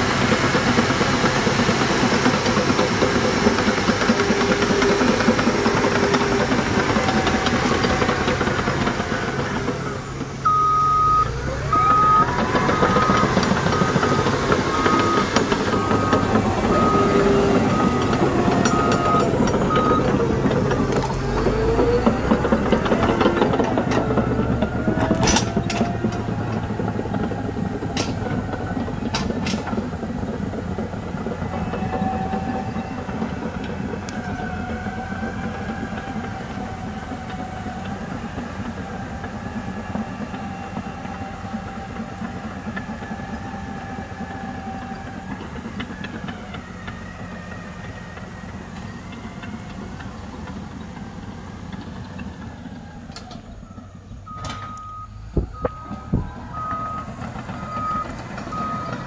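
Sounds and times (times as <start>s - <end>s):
steel tracks clanking: 0.0s - 10.5s, 11.2s - 59.0s
bulldozer engine under load: 0.0s - 59.0s
back-up alarm beeping: 10.4s - 20.2s, 54.3s - 59.0s.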